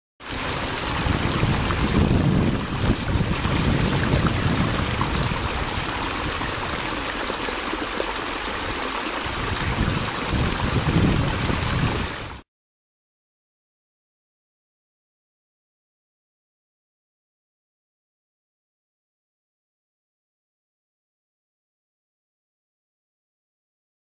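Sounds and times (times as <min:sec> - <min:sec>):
stream splashing over rocks: 0:00.2 - 0:12.4
wind rumble on microphone: 0:00.3 - 0:07.3, 0:08.6 - 0:12.4.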